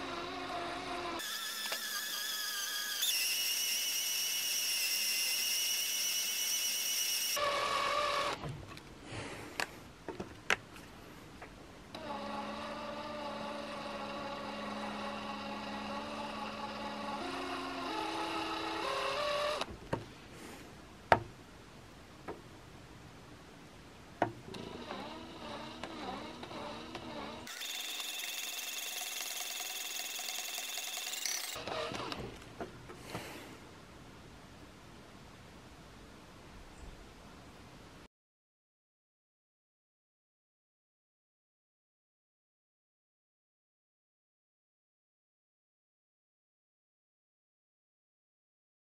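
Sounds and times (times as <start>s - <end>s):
cordless drill motor whine: 0.0s - 8.4s, 12.0s - 19.7s, 24.6s - 32.2s.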